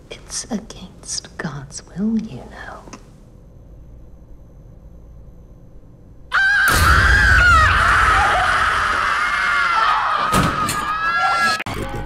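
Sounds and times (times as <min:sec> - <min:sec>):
woman screaming: 0:06.3 - 0:11.6.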